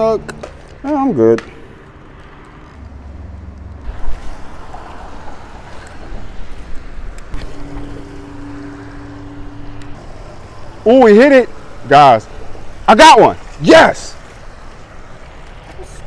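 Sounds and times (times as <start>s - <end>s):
steady low hum: 6.1s - 13.5s.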